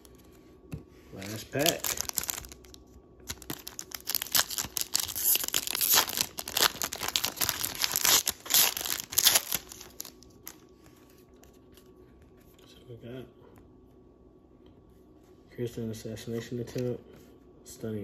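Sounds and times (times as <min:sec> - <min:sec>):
crinkly wrapper tearing and crumpling: 0:01.2 - 0:10.6.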